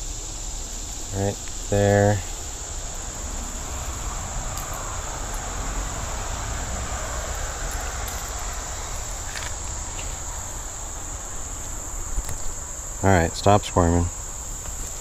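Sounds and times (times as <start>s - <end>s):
high-pitched insect chorus: 0.0s - 15.0s
low rumble: 2.2s - 11.6s.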